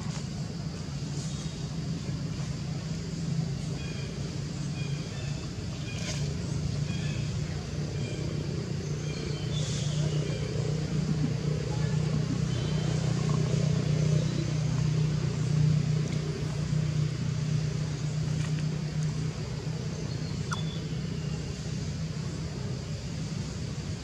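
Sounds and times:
low engine hum: 0:00.0 - 0:24.0
faint high chirps: 0:20.3 - 0:21.0.

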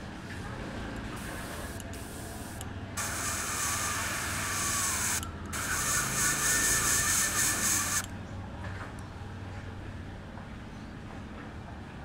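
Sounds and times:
airbrush hissing: 0:01.4 - 0:08.1.

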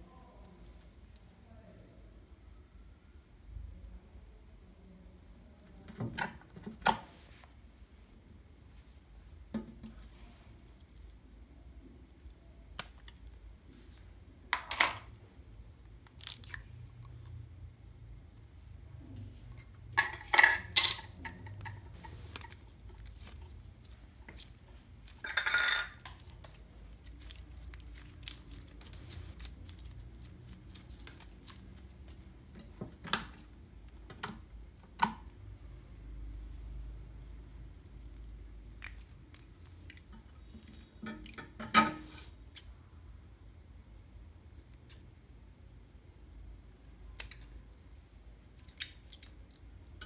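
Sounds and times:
slime clicking and crackling: 0:26.0 - 0:32.2.

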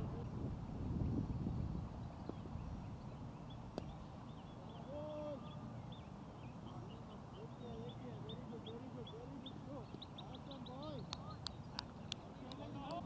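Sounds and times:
wind rumbling on microphone: 0:00.0 - 0:04.3
small birds chirping: 0:01.0 - 0:13.0.

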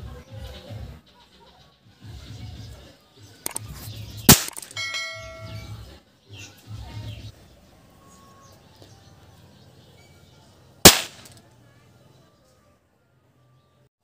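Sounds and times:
toy cap bangs: 0:03.5 - 0:03.7, 0:04.3 - 0:05.5, 0:10.8 - 0:11.4.

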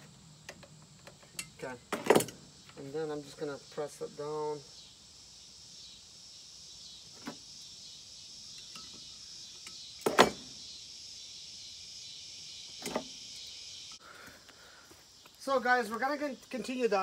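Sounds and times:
steady high hiss: 0:00.0 - 0:17.0
metal handling noises: 0:00.5 - 0:02.4.

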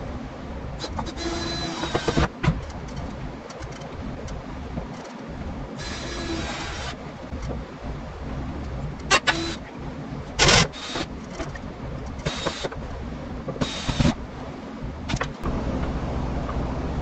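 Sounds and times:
steady low hum: 0:00.0 - 0:17.0
cordless driver driving screws: 0:09.1 - 0:09.6, 0:12.2 - 0:12.8.

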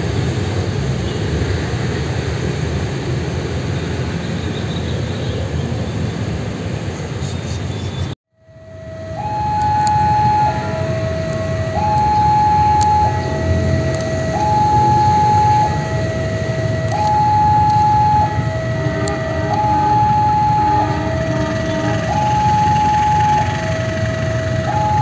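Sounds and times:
level crossing two-tone alarm: 0:08.4 - 0:25.0.

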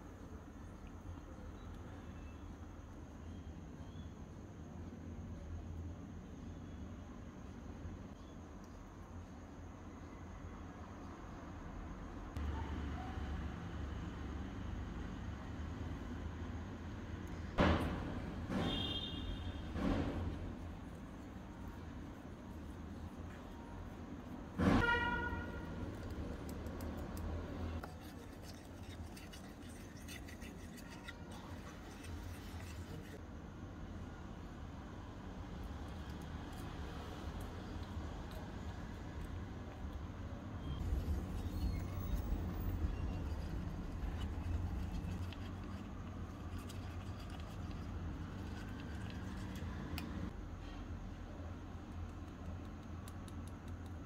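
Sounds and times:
spoon scratching steel bowl: 0:27.8 - 0:33.2, 0:40.8 - 0:50.3.

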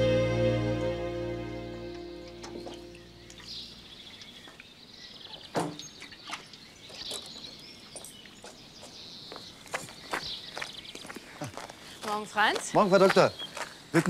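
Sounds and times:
small birds chirping: 0:02.3 - 0:14.0.

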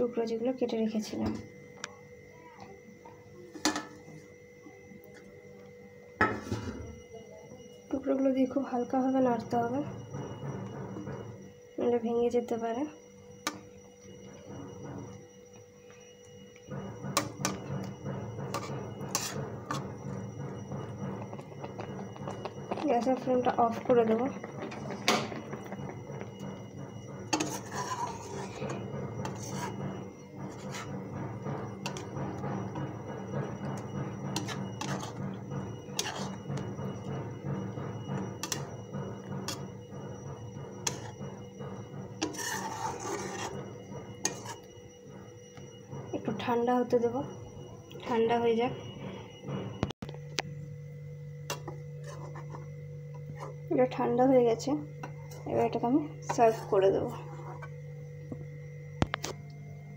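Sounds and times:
steady low hum: 0:00.0 - 0:59.9
low rumbling noise: 0:16.8 - 0:44.3.

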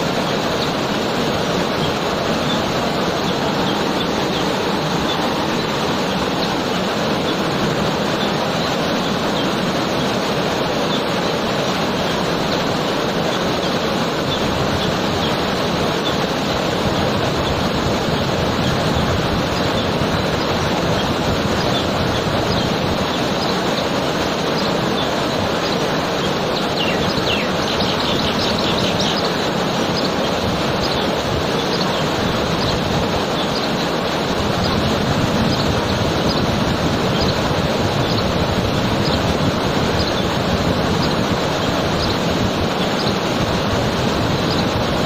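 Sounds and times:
bird chirping rapidly: 0:00.0 - 0:45.0
waterfall rushing: 0:00.0 - 0:45.0.

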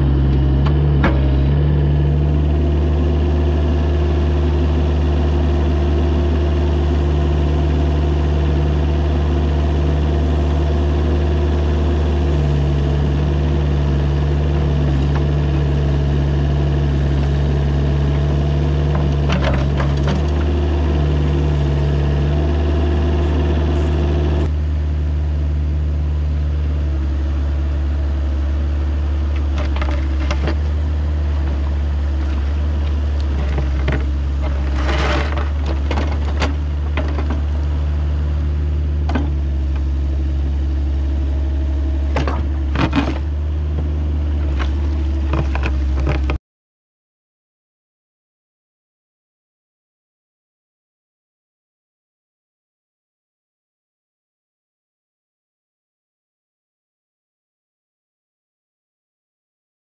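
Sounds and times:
excavator diesel engine running: 0:00.0 - 0:46.4.

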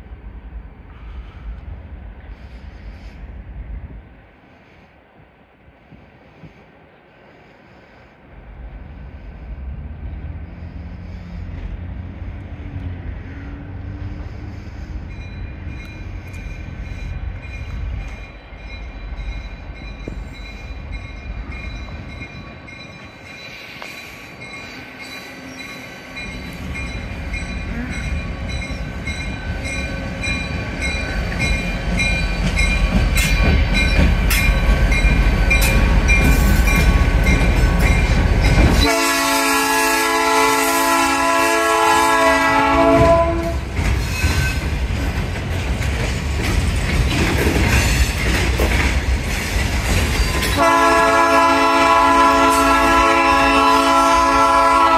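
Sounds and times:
diesel locomotive engine rumble: 0:00.0 - 0:54.9
train wheels clicking: 0:09.8 - 0:39.1, 0:42.8 - 0:52.8.

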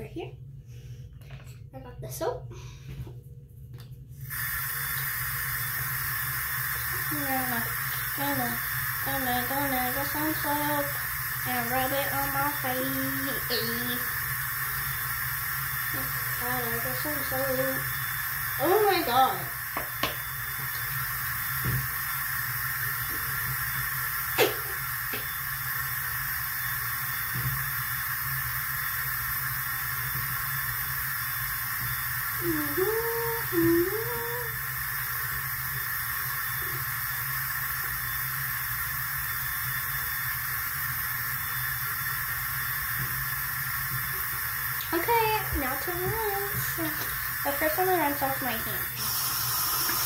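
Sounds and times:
steady hiss: 0:04.2 - 0:50.0
person humming: 0:32.4 - 0:34.6.

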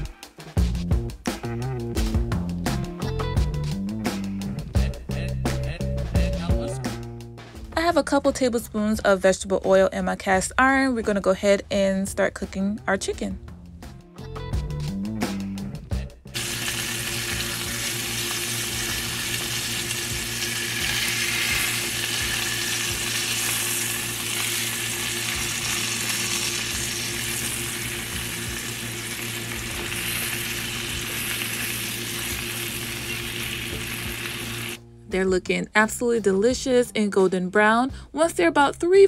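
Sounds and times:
chicken frying in oil: 0:16.3 - 0:34.8.

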